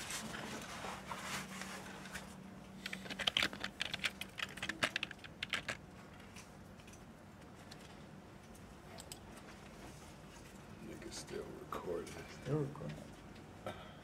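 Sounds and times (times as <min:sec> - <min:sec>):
typing on keyboard: 0:02.8 - 0:05.8.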